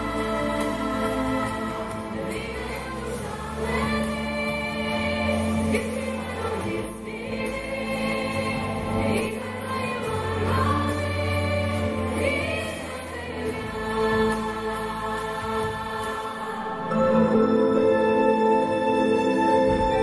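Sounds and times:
woman singing into a microphone: 0.0s - 16.7s
sustained chords accompaniment: 16.4s - 20.0s.

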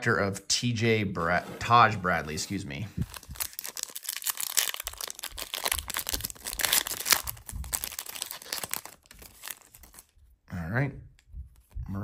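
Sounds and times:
foil wrapper tearing and crinkling: 3.1s - 10.1s.

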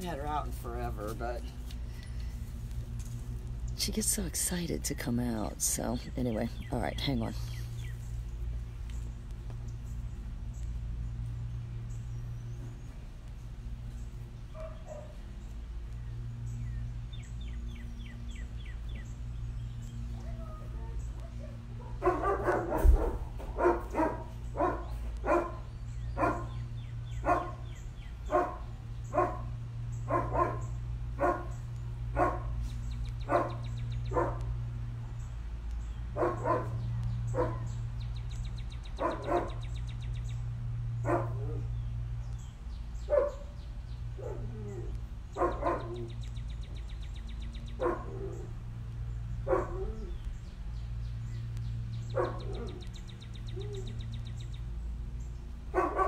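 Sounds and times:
steady low hum: 0.0s - 56.0s
dog barking: 20.3s - 26.6s, 27.2s - 27.7s, 28.3s - 29.5s, 30.1s - 31.6s, 32.2s - 32.6s, 33.3s - 34.5s, 36.2s - 37.8s, 39.0s - 39.6s, 41.0s - 41.7s, 43.1s - 43.5s, 44.2s - 44.5s, 45.3s - 46.1s, 47.8s - 48.5s, 49.4s - 50.1s, 52.1s - 52.9s, 55.7s - 56.0s.

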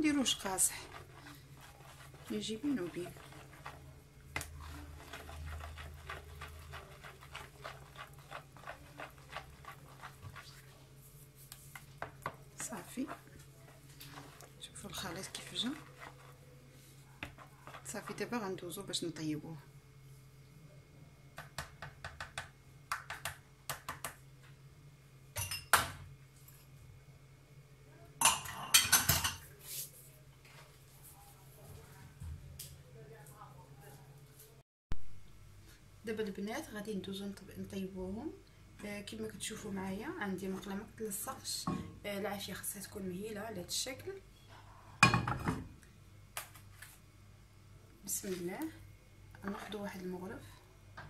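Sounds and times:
whisk beating batter in a bowl: 0.0s - 19.0s
whisk knocking against bowl: 0.2s - 10.7s, 11.7s - 13.4s, 17.2s - 18.2s, 21.4s - 24.2s
dishes and utensils clattering: 28.2s - 29.5s.

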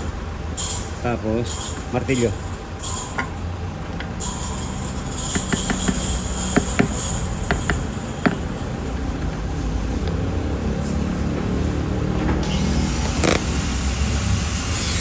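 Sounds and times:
hammer taps on metal: 5.3s - 8.5s.

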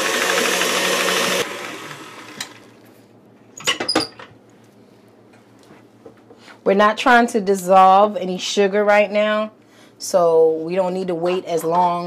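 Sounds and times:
stand mixer motor: 0.0s - 2.7s.

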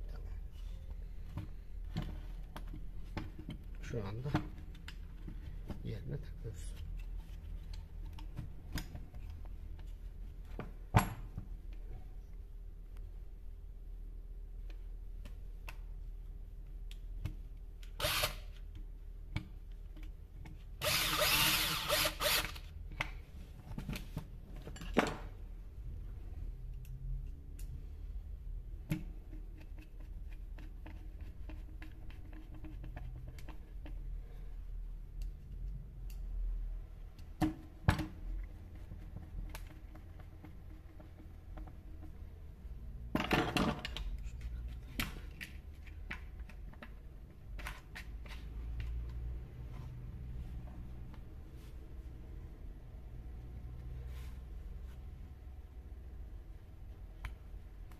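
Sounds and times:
drill running: 20.8s - 22.6s.

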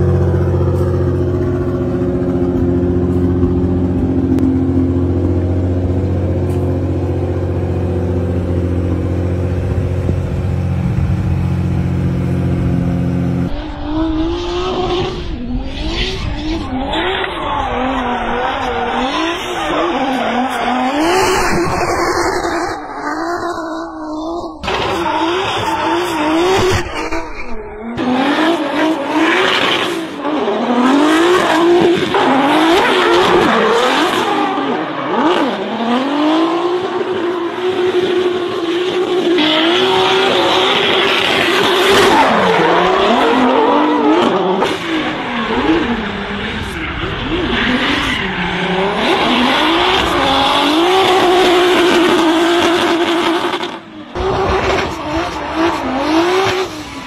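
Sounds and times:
car engine idling: 0.0s - 13.5s
engine revving hard: 12.6s - 57.0s.

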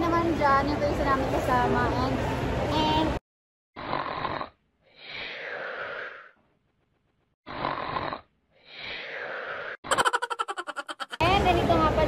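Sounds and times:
person snoring: 3.8s - 6.4s, 7.5s - 9.8s.

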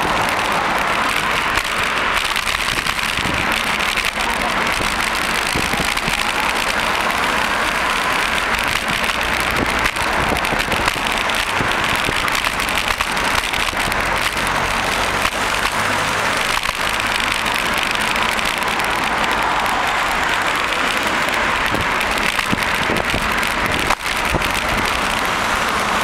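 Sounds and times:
wind on microphone: 2.6s - 3.6s, 4.7s - 6.5s, 21.4s - 25.6s.

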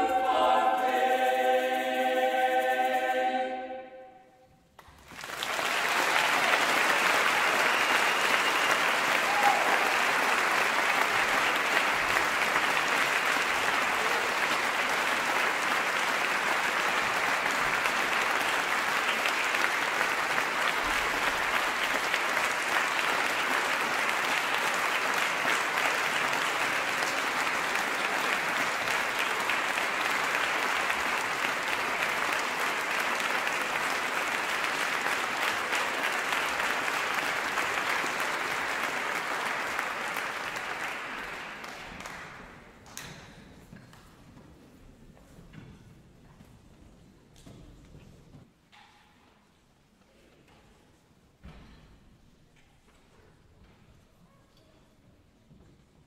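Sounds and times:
audience applauding: 4.8s - 43.2s.

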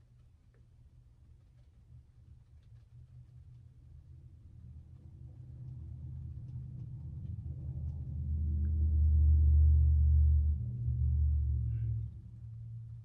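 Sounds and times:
low droning hum: 4.1s - 13.0s.

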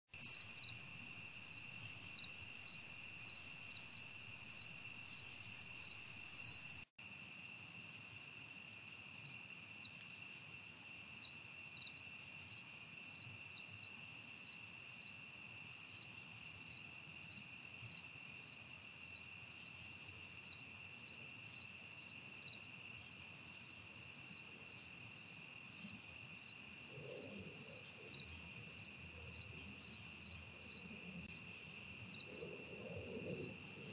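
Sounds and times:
insect chirping in pulses: 0.2s - 6.8s, 22.5s - 33.9s.

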